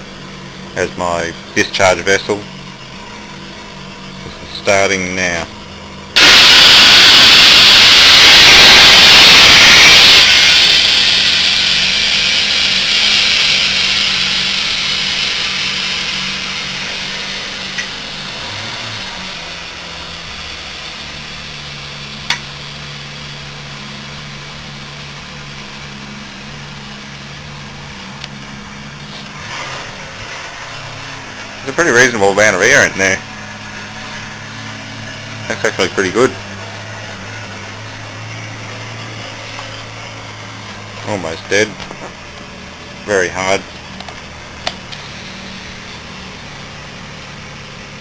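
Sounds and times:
compressed air hissing: 6.2s - 18.6s.

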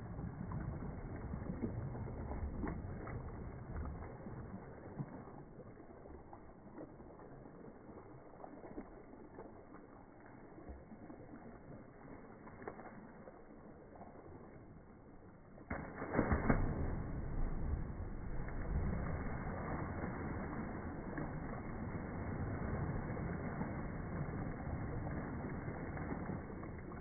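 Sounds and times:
low rumble: 15.7s - 27.0s.

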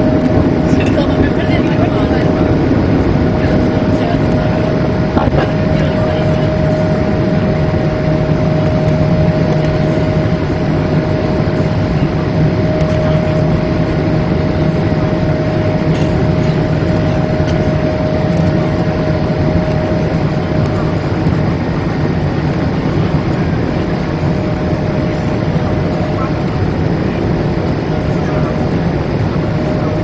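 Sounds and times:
jet airliner cabin noise: 0.0s - 30.0s.

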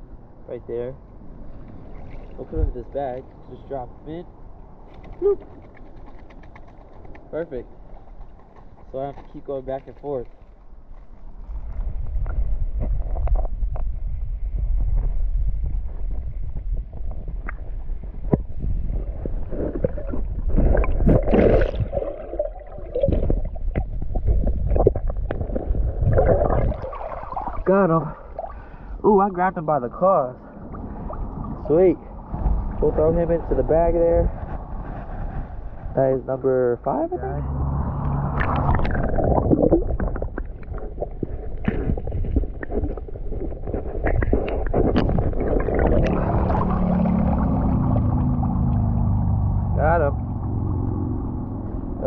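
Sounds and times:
muffled underwater churning rumble: 10.6s - 36.0s, 36.8s - 52.0s
rush of water: 19.0s - 28.9s, 38.0s - 49.0s
hand splashing water: 38.2s - 41.0s, 44.4s - 48.8s.

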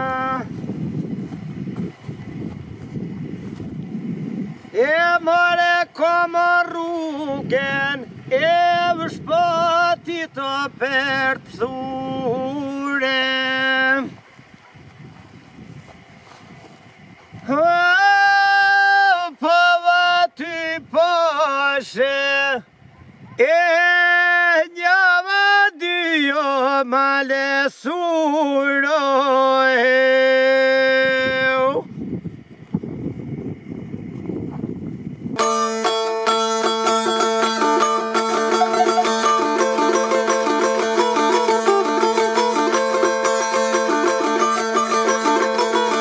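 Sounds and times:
man singing solo: 0.0s - 0.5s, 17.5s - 22.6s, 38.0s - 42.2s
person singing unaccompanied: 0.0s - 0.6s, 4.6s - 14.4s, 17.4s - 31.9s, 35.4s - 46.0s.

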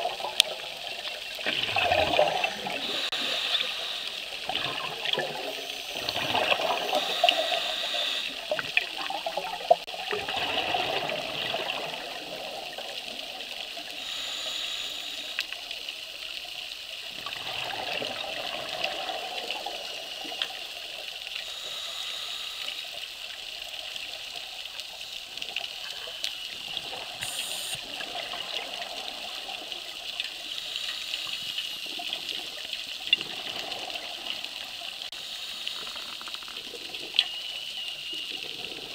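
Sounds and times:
exhaled bubbles rushing: 0.0s - 7.4s, 8.5s - 13.2s, 17.2s - 19.9s
steady hiss of water: 0.0s - 38.9s.

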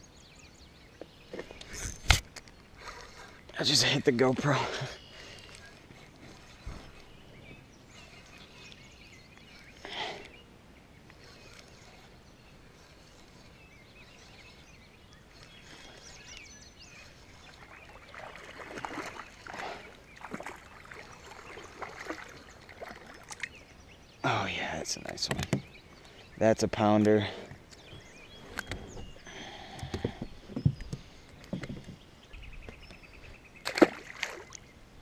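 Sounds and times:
fish splashing in water: 17.6s - 23.5s, 33.6s - 34.6s.

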